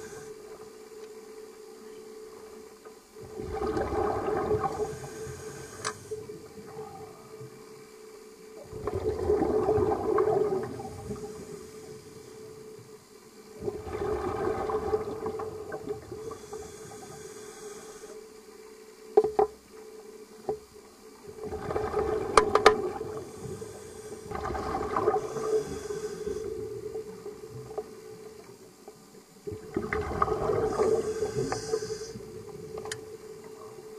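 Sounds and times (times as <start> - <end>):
steady hum: 0.0 - 33.9
exhaled bubbles gushing: 3.2 - 5.2, 8.6 - 11.4, 13.6 - 16.4, 21.3 - 23.6, 24.2 - 25.8, 29.5 - 32.8.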